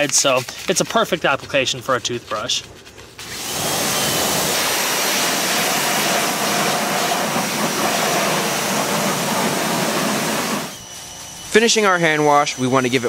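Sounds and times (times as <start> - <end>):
pressure washer spraying water: 3.2 - 13.0.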